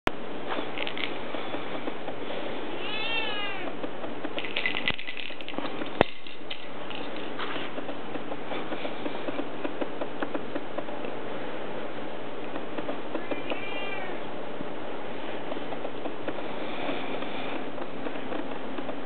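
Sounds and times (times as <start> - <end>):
cat meowing: 2.7 - 3.8, 13.2 - 14.2.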